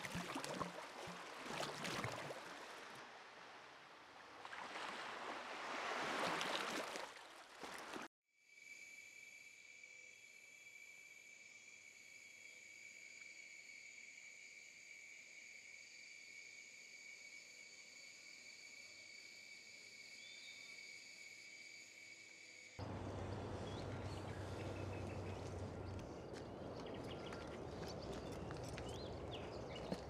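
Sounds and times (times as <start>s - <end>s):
night insects chirring: 8.5s - 30.0s
low hum: 22.8s - 29.6s.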